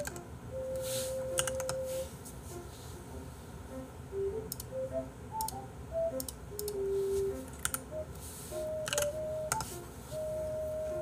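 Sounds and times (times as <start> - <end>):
keyboard keys clicking: 0.0 - 1.9, 4.2 - 9.8
soft background music: 0.0 - 11.0.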